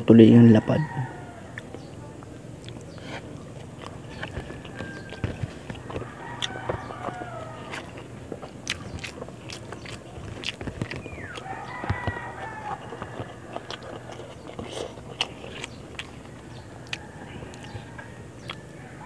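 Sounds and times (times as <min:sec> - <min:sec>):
rooster crowing: 0:00.2 - 0:01.8, 0:03.8 - 0:08.1, 0:10.9 - 0:19.0
chewing and wet mouth clicks: 0:02.6 - 0:18.7.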